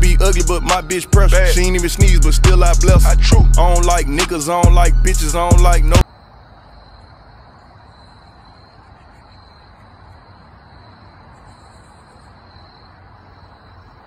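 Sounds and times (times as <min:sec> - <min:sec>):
low outdoor rumble: 0:00.0 - 0:06.0
crickets chirping: 0:00.0 - 0:14.0.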